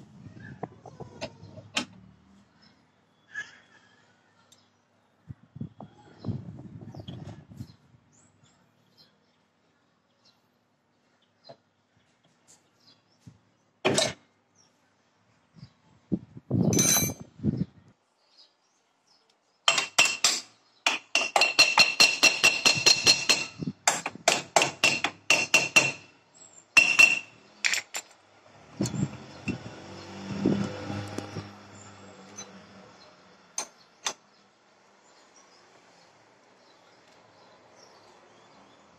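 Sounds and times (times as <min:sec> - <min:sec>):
wrench tapping on metal: 0:19.7 - 0:26.1, 0:26.8 - 0:28.0.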